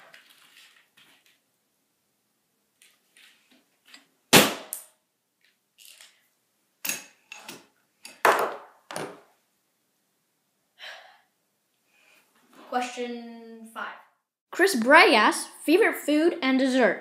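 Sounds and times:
paper rustling: 0.0 - 1.4.

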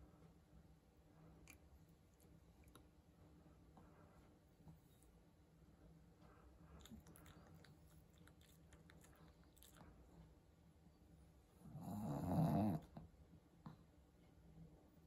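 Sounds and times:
dog snoring: 11.6 - 13.0.

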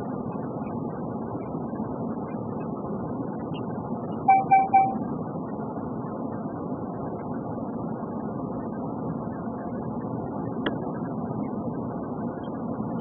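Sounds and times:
car road and engine noise: 0.0 - 13.0
short beeps: 4.3 - 5.0.

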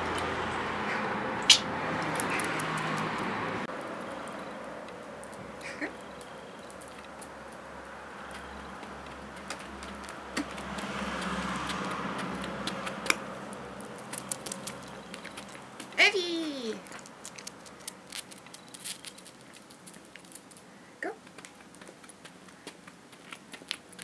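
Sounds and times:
dog claws clicking on stone: 8.3 - 16.0, 16.8 - 20.6, 21.2 - 24.0.

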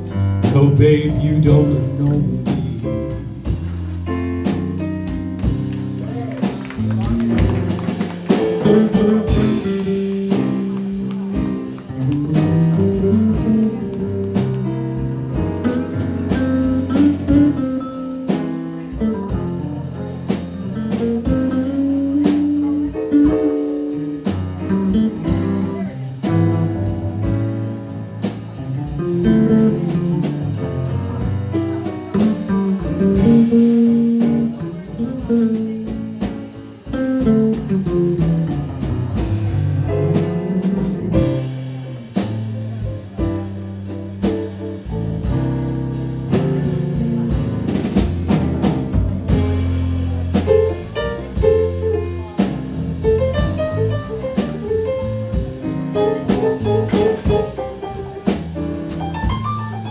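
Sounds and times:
drums: 0.0 - 59.9
electric guitar: 5.4 - 14.6.

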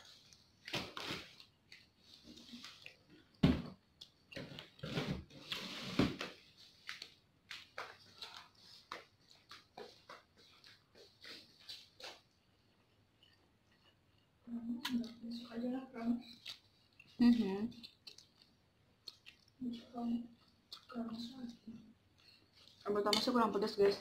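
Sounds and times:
chewing and mouth smacks: 12.0 - 15.2, 16.3 - 19.6, 20.3 - 21.1.

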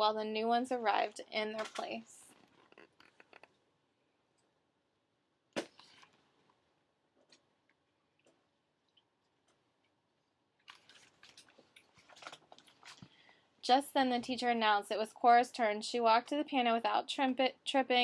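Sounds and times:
book handling rustles: 10.6 - 13.4.

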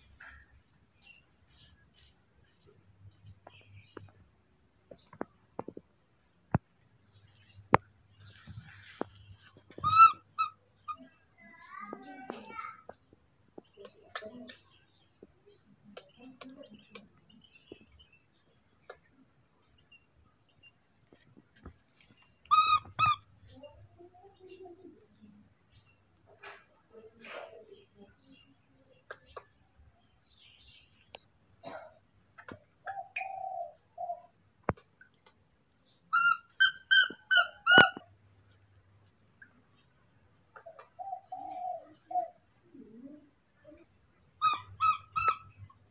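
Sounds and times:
baby monkey calling: 9.7 - 11.2, 22.4 - 23.3, 36.1 - 38.1, 44.4 - 45.9.

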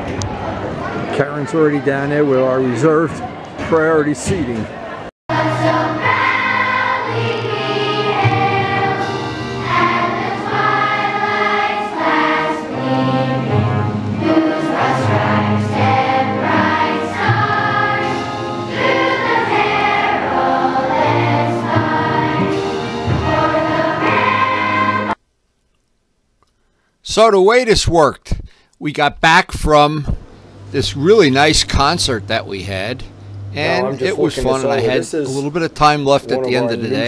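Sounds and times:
children's choir singing: 5.3 - 25.2.

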